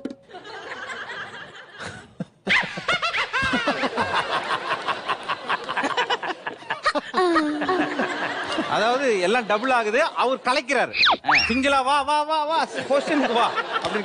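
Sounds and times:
audience laughing: 0.3 - 11.6, 12.4 - 14.0.

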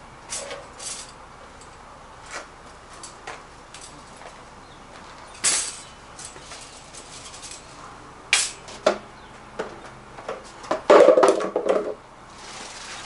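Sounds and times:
metal wire cart clanking: 0.3 - 3.2, 5.2 - 7.8.

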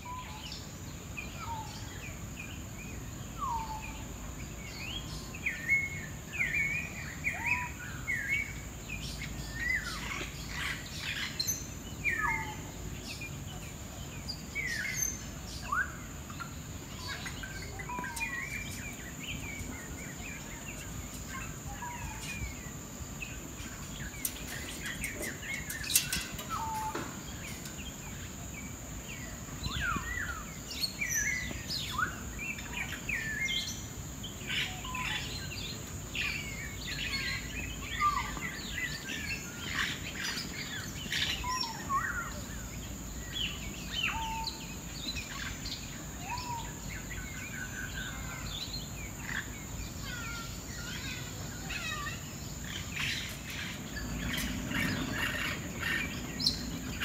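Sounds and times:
birds chirping and whistling: 0.0 - 57.0.

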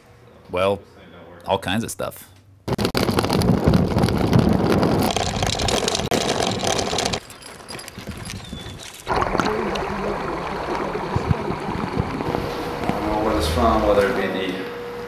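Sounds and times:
wind and road noise: 2.8 - 14.2
river water sloshing: 9.0 - 13.3.

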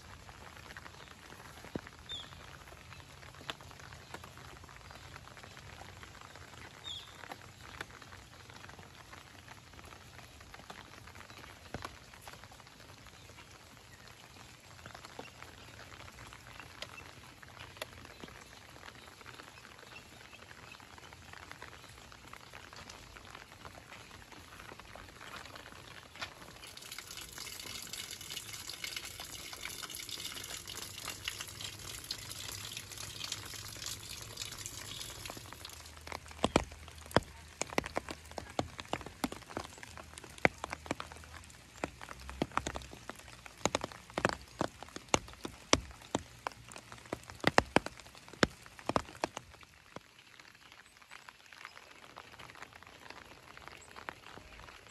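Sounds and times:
rain falling: 0.0 - 54.9
loud close water drops: 26.5 - 41.0.

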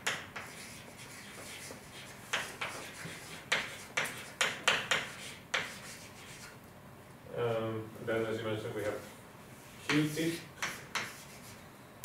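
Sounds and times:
taps and scratches of writing on board: 0.0 - 6.5, 9.9 - 11.4.

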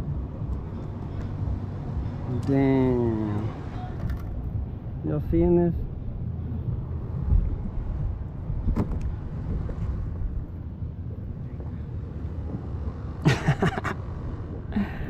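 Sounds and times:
wind buffeting microphone: 5.8 - 12.9.

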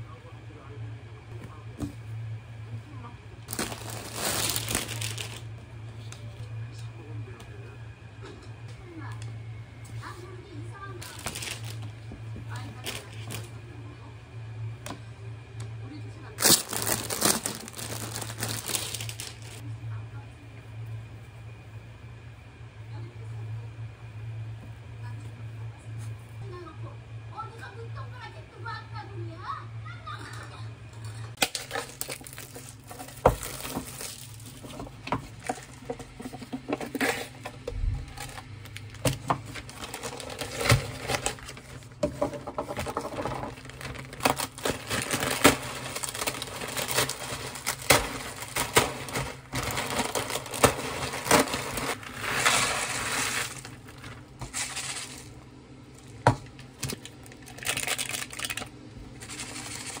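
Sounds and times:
dry noodles crushed in plastic bag: 3.4 - 5.6, 11.0 - 13.5, 16.4 - 19.6, 31.4 - 35.8, 38.0 - 42.0, 42.6 - 55.3, 56.0 - 60.0.

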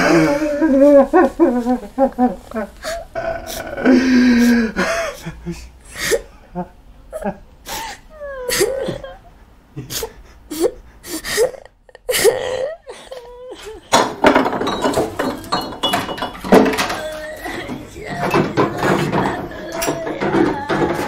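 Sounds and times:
person sobbing and gasping: 0.0 - 21.0
glassware clinking and clattering: 13.9 - 21.0.

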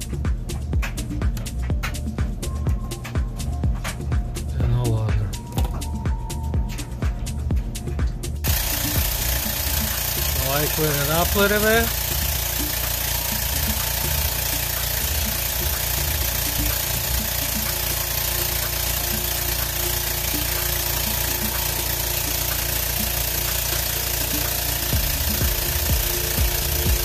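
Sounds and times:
machine humming and hissing: 8.4 - 27.0.

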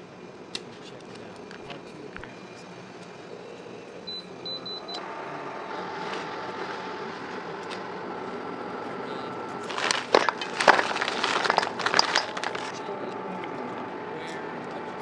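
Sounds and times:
faint hum: 0.0 - 15.0
plastic bag crinkling: 9.6 - 12.8.

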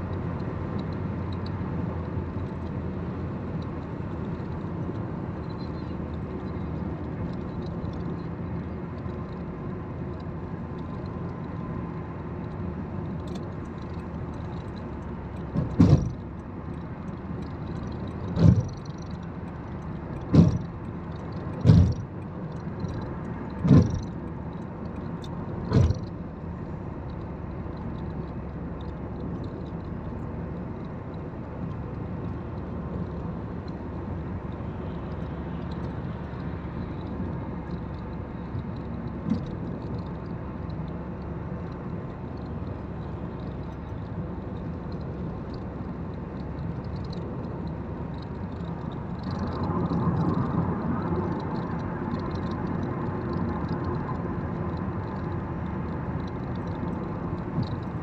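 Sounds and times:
road and tyre noise: 0.0 - 58.0
loud short thumps: 15.6 - 16.2.

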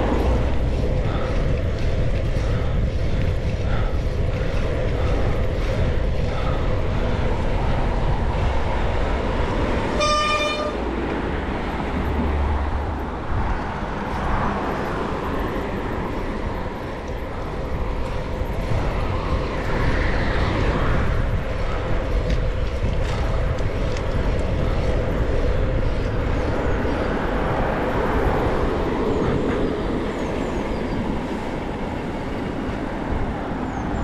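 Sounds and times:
city traffic: 0.0 - 34.0
wind noise on microphone: 0.0 - 34.0
vehicle horn toot: 9.9 - 10.9.

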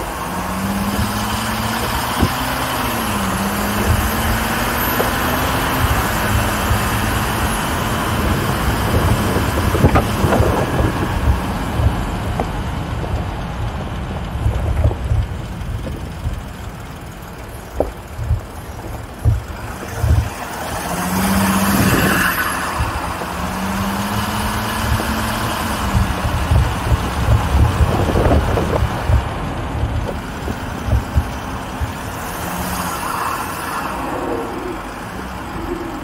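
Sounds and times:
car engine running: 0.0 - 36.0
stones clicking under tyres: 0.5 - 36.0
low rumble on microphone: 8.2 - 23.9, 24.7 - 32.2.

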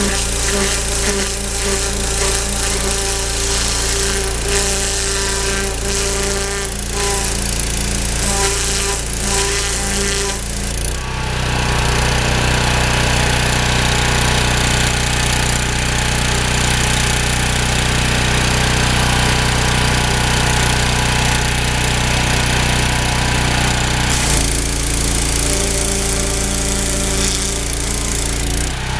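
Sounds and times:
water jet hissing: 0.0 - 10.8, 24.1 - 28.7
pressure washer running: 0.0 - 28.9.

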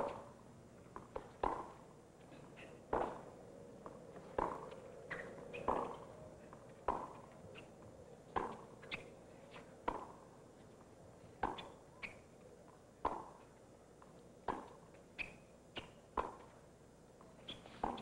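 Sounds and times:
tennis ball bouncing: 0.9 - 1.8, 2.9 - 7.7, 8.3 - 10.2, 11.4 - 12.2, 13.0 - 13.5, 14.4 - 16.5, 17.7 - 18.0
tennis racquets striking ball: 0.9 - 1.8, 2.9 - 7.3, 8.3 - 9.1, 9.8 - 10.2, 11.4 - 12.2, 13.0 - 13.4, 14.5 - 16.5, 17.7 - 18.0.

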